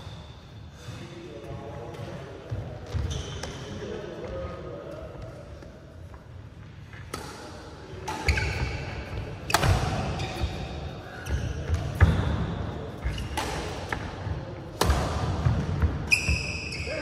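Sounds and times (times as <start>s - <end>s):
rackets striking shuttlecock: 9.5s - 10.4s, 13.0s - 16.4s.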